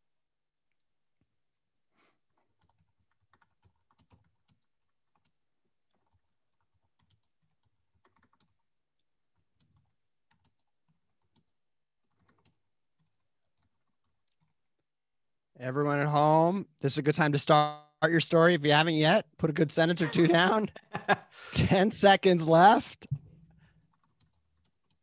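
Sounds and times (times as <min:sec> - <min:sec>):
typing on keyboard: 0:02.3 - 0:08.7, 0:09.3 - 0:14.6, 0:23.8 - 0:25.0.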